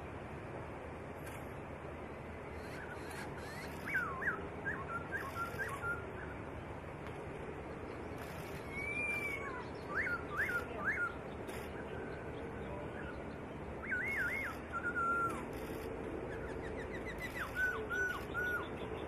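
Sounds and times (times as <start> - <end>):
steady background hiss: 0.0 - 19.0
songbird whistling: 2.6 - 6.4, 8.2 - 12.2, 12.9 - 19.0.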